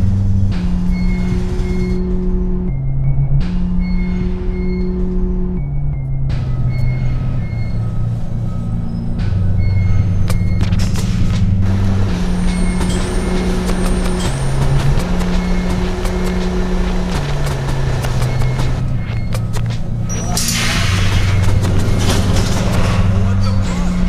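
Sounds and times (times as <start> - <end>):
low sustained music notes: 0.0 - 24.0
bus rumble and hiss: 10.8 - 23.4.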